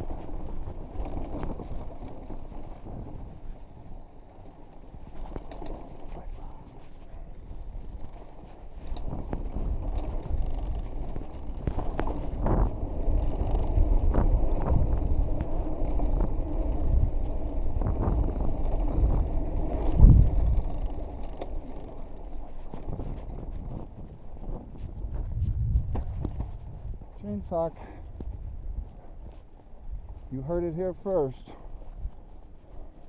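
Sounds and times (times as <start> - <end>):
wind buffeting the microphone: 0.0 - 4.0, 4.9 - 33.0
bike knocking and rattling over rock: 0.0 - 6.6, 7.4 - 27.2.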